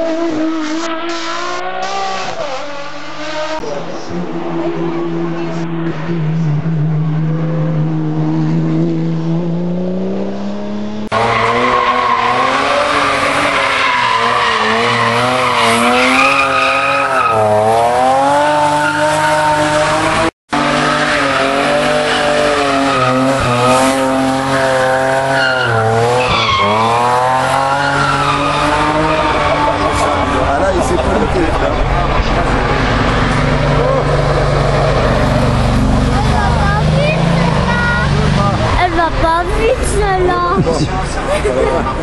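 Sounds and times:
racing car engines revving: 0.0 - 42.0
tyres spinning and squealing: 11.1 - 42.0.

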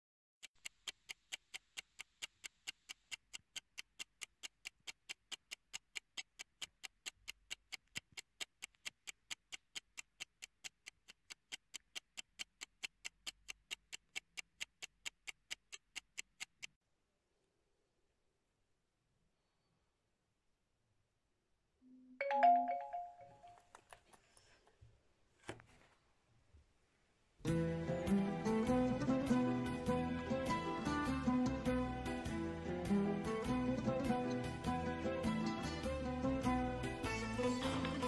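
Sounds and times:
clock ticking rapidly: 0.4 - 16.8.

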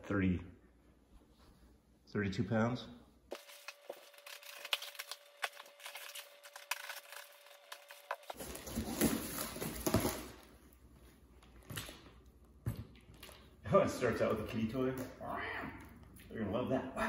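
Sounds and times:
cardboard scraping and rustling: 3.3 - 10.4.

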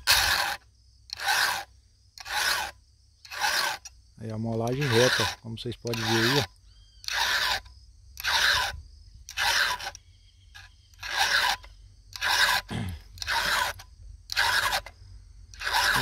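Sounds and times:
file rasping on saw chain: 0.0 - 16.0.

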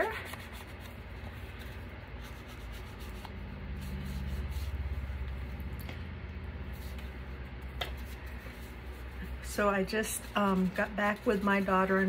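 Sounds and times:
ink tool rubbing paper: 0.0 - 5.1
steady low hum: 0.0 - 12.0.

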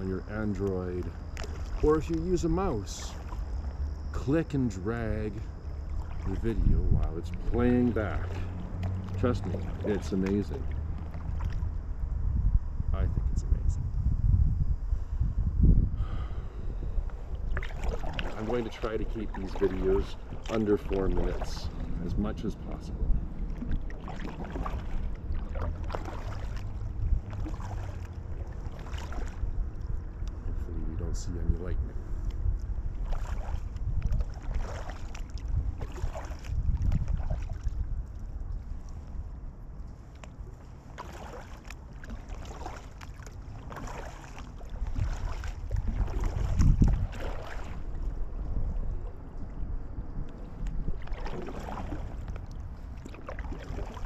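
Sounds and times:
paddle splashing in water: 0.0 - 11.8, 17.1 - 30.5, 32.8 - 49.6, 50.4 - 54.0
steady low rumble: 0.0 - 54.0
water drips: 0.2 - 11.8, 17.0 - 22.1, 23.4 - 30.4.

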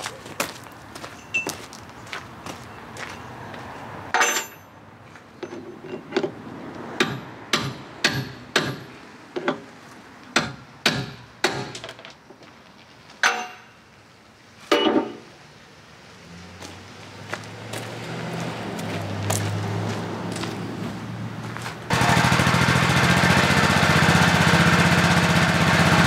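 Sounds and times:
hammer striking metal bracket: 4.1 - 4.7, 7.0 - 8.9, 13.2 - 13.7, 14.7 - 15.2.

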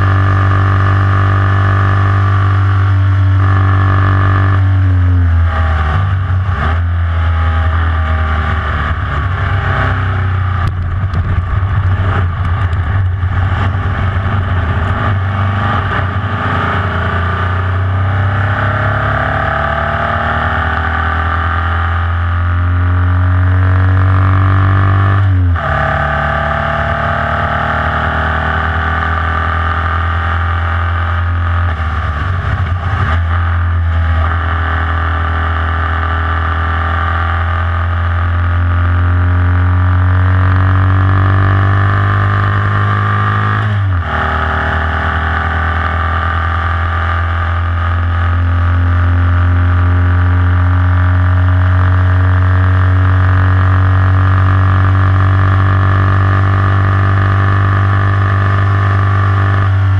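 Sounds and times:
race car engine at full throttle: 0.0 - 59.9
car knocking and rattling on grass: 10.6 - 13.8.

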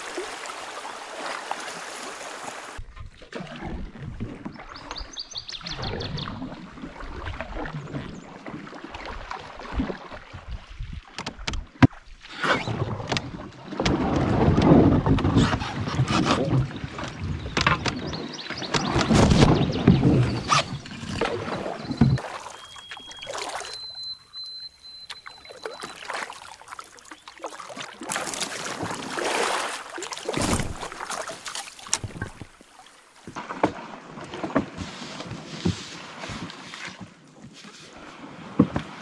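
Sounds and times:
paddle strokes splashing water: 0.0 - 39.0
water dripping: 22.1 - 33.3.

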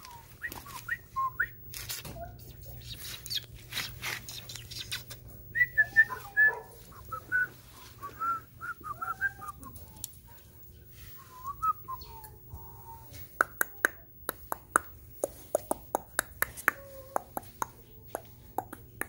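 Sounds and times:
puppies whining and squeaking: 0.0 - 10.4, 11.0 - 13.3.

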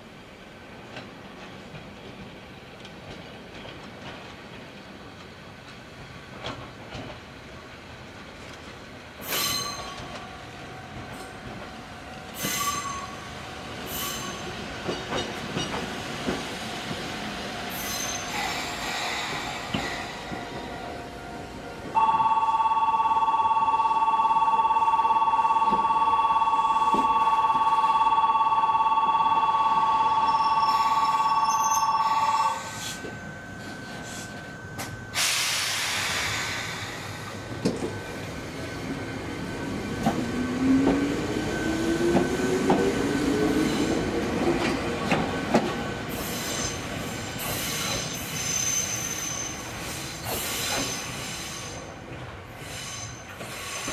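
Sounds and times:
electric train wheels clacking: 0.8 - 7.3, 8.4 - 28.3, 28.9 - 53.9
two-tone ringing: 22.0 - 35.2.

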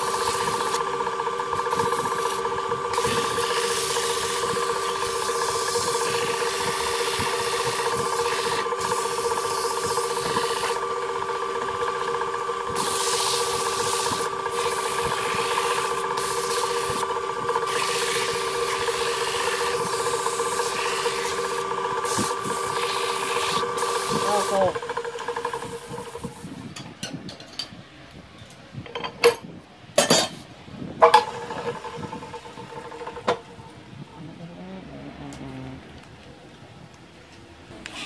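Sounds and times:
sandpaper sanding wood: 0.0 - 0.8, 1.6 - 10.8, 12.7 - 24.8
wood lathe motor humming: 0.0 - 26.8, 31.0 - 34.8.

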